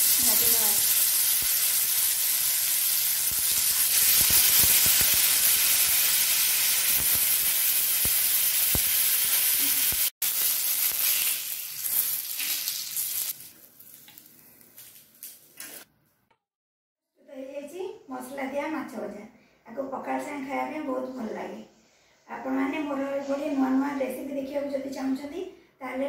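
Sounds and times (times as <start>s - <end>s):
fish frying in oil: 0.0s - 15.4s.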